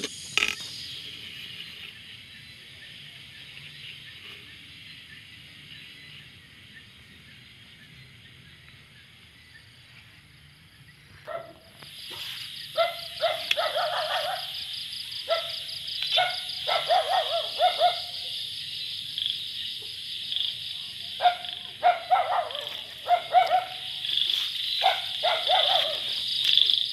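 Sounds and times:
night insects trilling: 0.0 - 26.9
animal barking and yelping: 12.8 - 14.6, 15.3 - 18.2, 21.2 - 23.9, 24.8 - 26.2.

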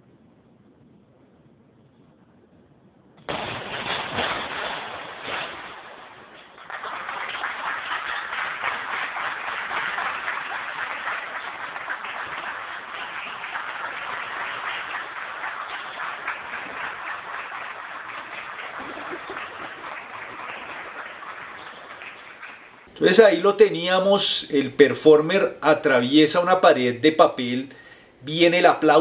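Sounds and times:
audience applauding: 6.4 - 29.0.

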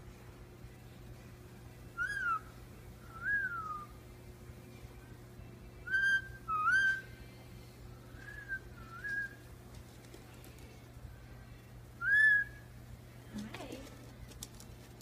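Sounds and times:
parakeet whistling: 2.0 - 2.5, 3.1 - 3.9, 5.8 - 7.1, 12.0 - 12.7.

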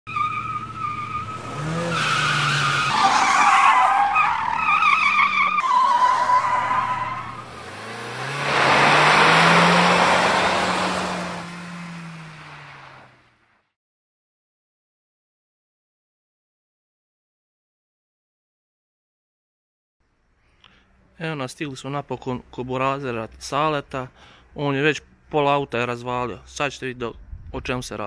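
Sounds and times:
tire squeal: 0.1 - 13.2
car engine revving: 0.1 - 13.3
car skidding: 0.1 - 13.3.

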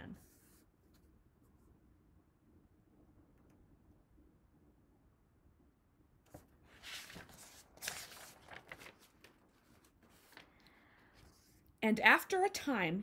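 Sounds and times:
paper pages being turned: 6.3 - 11.7.

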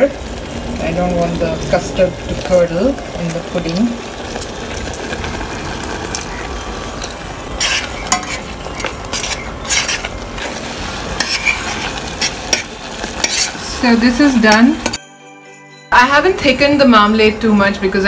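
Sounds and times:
marmalade bubbling in a pan: 0.0 - 14.4
utensil scraping pan bottom: 7.0 - 13.6.

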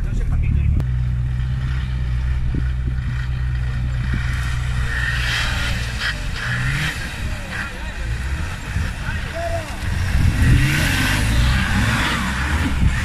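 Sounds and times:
engine running at low revs: 0.0 - 13.0
rougher higher engine noise: 0.0 - 13.0.

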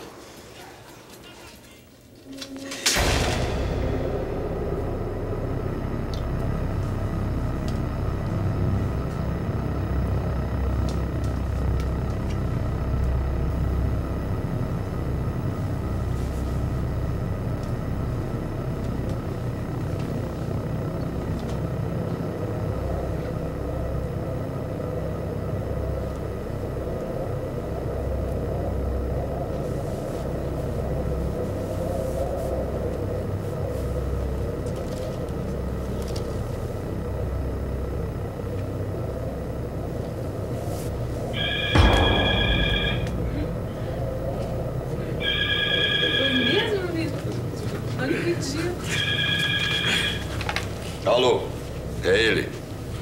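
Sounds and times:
low rumbling drone: 2.4 - 53.0
held tone: 41.3 - 46.8.

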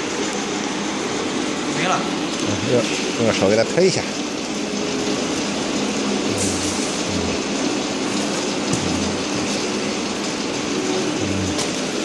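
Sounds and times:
low hum: 6.1 - 7.8.

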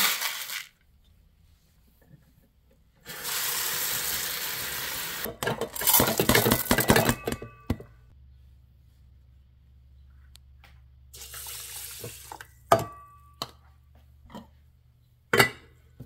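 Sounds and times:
rice grains clattering into pot: 0.0 - 0.8.

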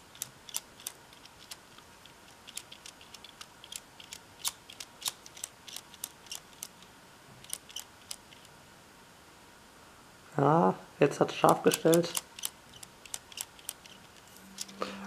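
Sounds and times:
plastic toy gears clicking: 0.1 - 6.7, 7.4 - 8.5, 11.5 - 14.8.

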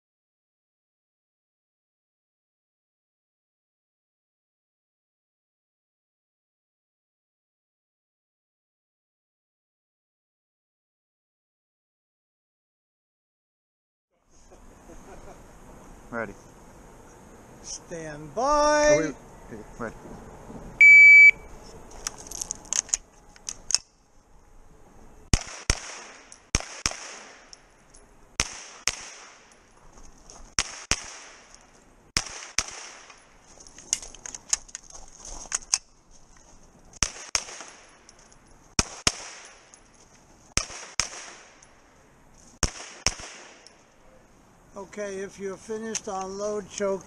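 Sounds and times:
electronic timer beep: 20.8 - 21.5
carbine gunshots: 25.3 - 27.6, 28.4 - 29.5, 30.6 - 31.5, 32.2 - 33.2, 37.0 - 37.9, 38.8 - 39.6, 40.6 - 41.7, 42.6 - 43.7.

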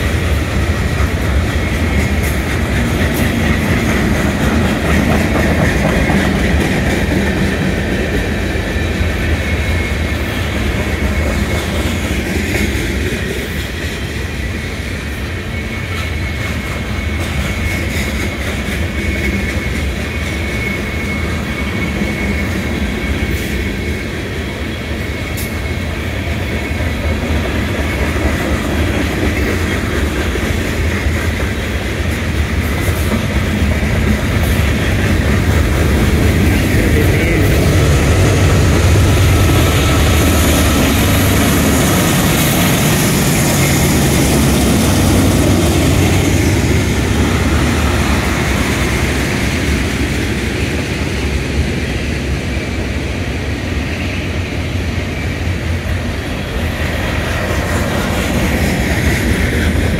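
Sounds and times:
diesel locomotive engine: 0.0 - 59.9
freight cars rumbling on rails: 0.0 - 59.9.

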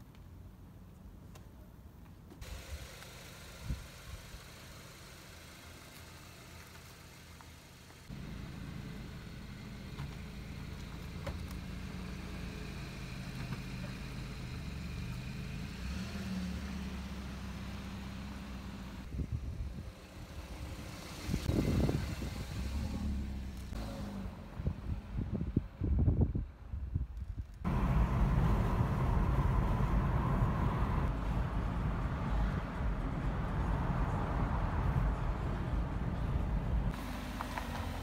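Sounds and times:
car engine idling: 2.4 - 15.6, 27.7 - 38.0.

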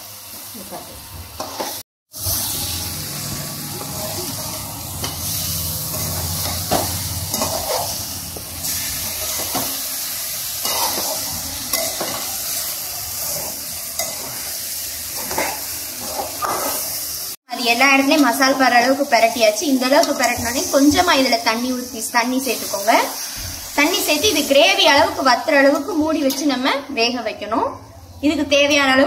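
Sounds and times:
fish sizzling in a pan: 0.0 - 26.3
metal spatula scraping a pan: 3.9 - 17.1.

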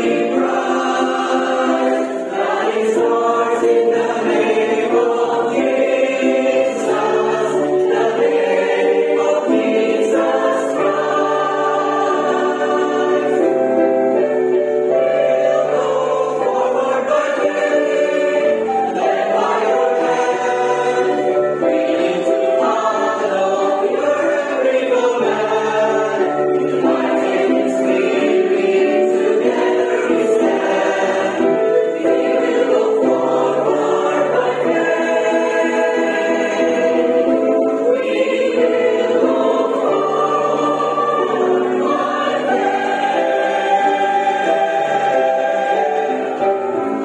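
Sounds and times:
choir singing: 0.0 - 47.0.

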